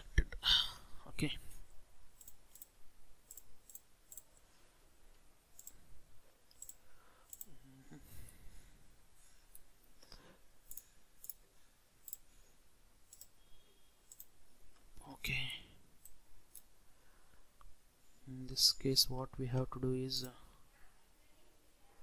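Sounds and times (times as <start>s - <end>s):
computer mouse clicks: 3.3s - 4.3s, 5.6s - 5.8s, 6.5s - 7.6s, 10.7s - 11.4s, 13.1s - 13.4s, 14.1s - 14.3s.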